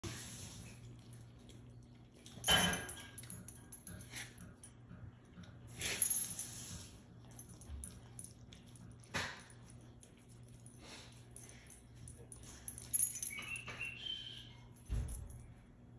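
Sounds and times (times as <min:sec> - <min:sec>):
collar tags clinking: 0:02.2 - 0:04.4, 0:05.7 - 0:15.6.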